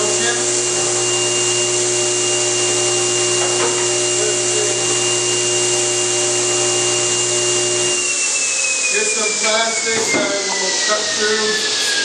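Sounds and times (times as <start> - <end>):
table saw running: 0.0 - 12.0.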